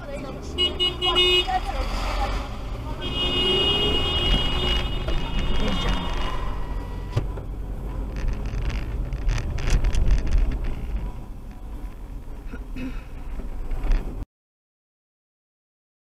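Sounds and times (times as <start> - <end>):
car engine and road rumble: 0.0 - 14.2.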